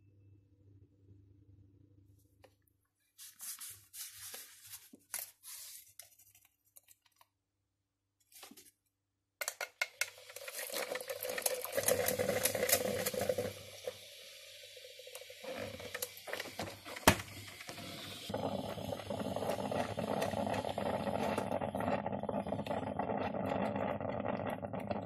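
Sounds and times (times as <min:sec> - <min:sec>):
coffee poured into paper filter: 0:09.4 - 0:25.0
coffee maker hissing and gurgling: 0:09.8 - 0:25.0.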